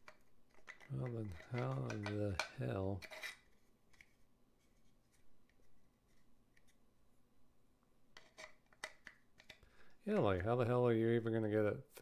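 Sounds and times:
puzzle box clicks and scrapes: 0:00.0 - 0:06.8, 0:08.2 - 0:10.0.

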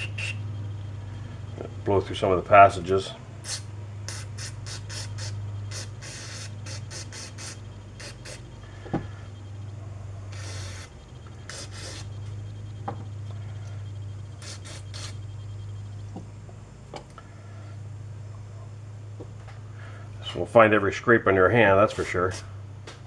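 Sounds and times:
steady low hum: 0:00.0 - 0:23.0
aerosol spray hissing: 0:03.4 - 0:08.5, 0:10.3 - 0:12.1, 0:14.4 - 0:15.2.

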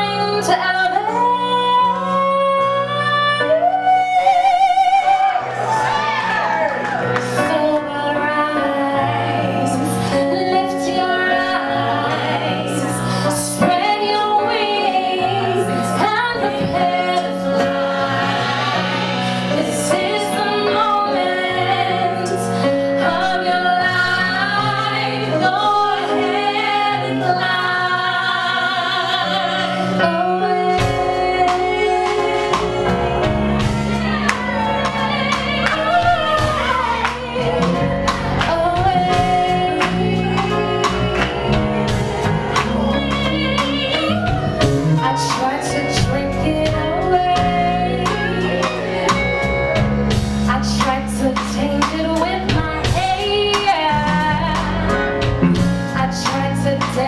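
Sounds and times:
keyboard: 0:00.0 - 0:57.0
woman singing lead: 0:00.0 - 0:57.0
backing singers: 0:03.9 - 0:57.0
drums: 0:09.0 - 0:57.0
electric bass: 0:29.9 - 0:57.0
heavy low bass: 0:30.9 - 0:45.2, 0:53.9 - 0:56.2.

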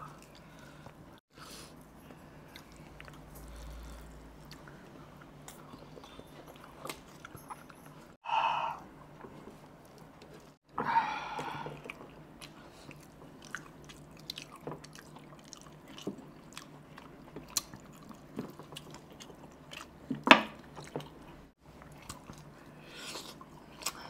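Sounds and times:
wet chewing and lip smacks: 0:02.4 - 0:08.1, 0:11.8 - 0:20.0, 0:20.6 - 0:24.0.

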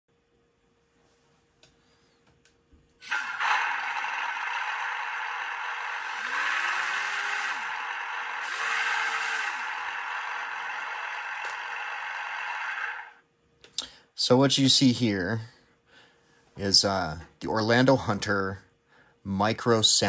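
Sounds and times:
simulated engine through small speaker: 0:03.0 - 0:13.2.

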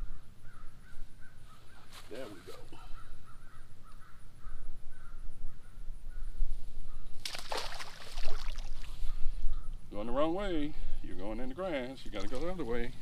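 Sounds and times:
crows cawing faintly: 0:00.0 - 0:07.2
fish thrashing in net: 0:07.2 - 0:08.8.

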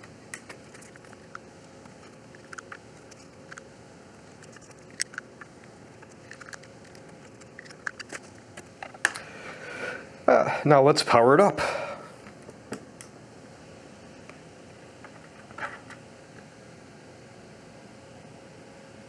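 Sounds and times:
plastic plugs clicking and rattling: 0:02.3 - 0:03.6, 0:04.4 - 0:05.3, 0:06.0 - 0:09.2.

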